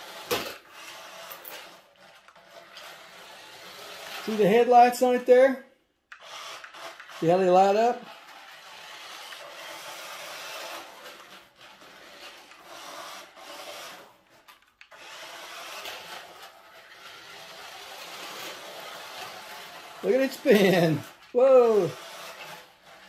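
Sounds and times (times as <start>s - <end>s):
toy car motor whirring: 0.0s - 23.0s.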